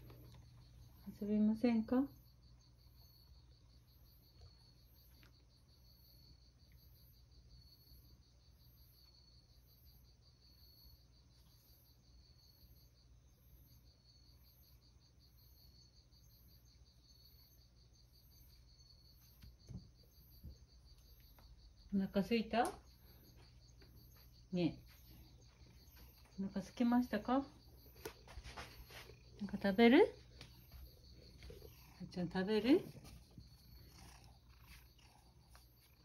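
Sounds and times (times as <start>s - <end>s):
high insect chirp: 0.0s - 36.0s
insect trilling: 19.6s - 36.0s.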